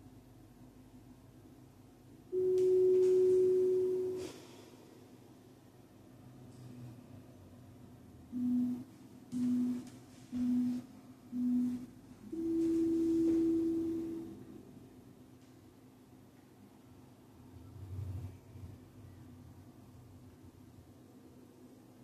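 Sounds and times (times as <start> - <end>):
short low timer beeps: 2.4 - 4.2, 8.4 - 8.8, 9.4 - 9.8, 10.4 - 10.8, 11.4 - 14.2
long high timer beep: 2.4 - 4.3, 8.4 - 8.8, 9.4 - 9.8, 10.4 - 14.4.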